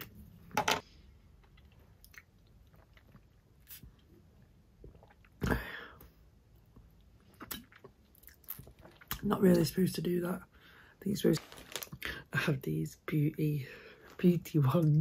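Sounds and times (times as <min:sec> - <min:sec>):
soft chewing: 0:01.3 - 0:05.4
person drinking liquid: 0:04.8 - 0:06.0.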